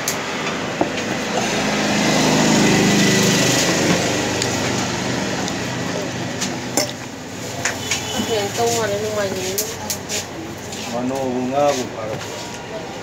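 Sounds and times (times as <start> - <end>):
small engine running: 1.0 - 6.0.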